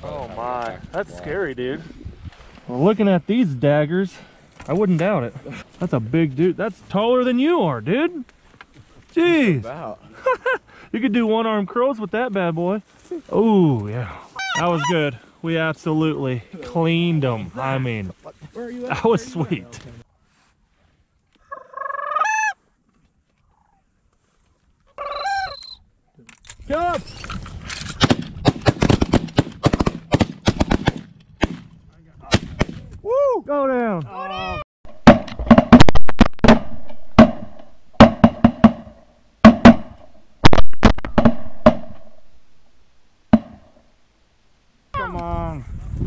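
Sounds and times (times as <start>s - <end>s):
shotgun shots with booming echo: 28.0s - 31.7s, 32.3s - 32.9s.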